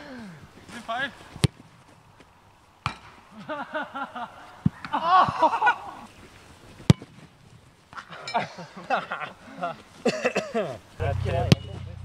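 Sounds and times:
boys calling out: 0:04.4 - 0:06.1.

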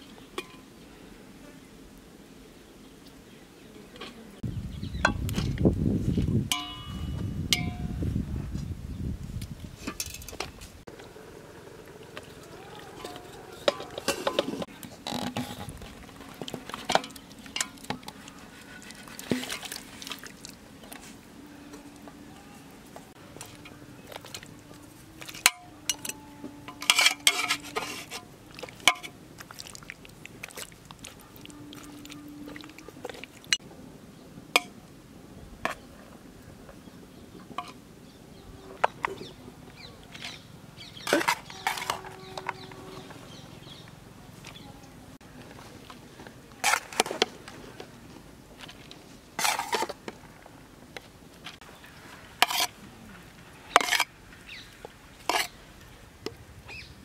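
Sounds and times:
steel ladle clattering in pot: 0:06.5 - 0:07.8, 0:13.0 - 0:15.7, 0:16.9 - 0:18.1, 0:25.2 - 0:29.1.

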